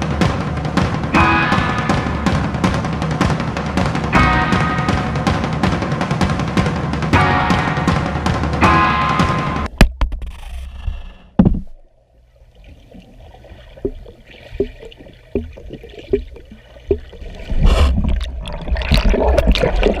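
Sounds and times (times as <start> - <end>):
dull underwater knocks: 11.4 - 11.9, 13.6 - 18.3
churning bubbling water: 12.4 - 20.0
bubbles popping underwater: 13.8 - 20.0.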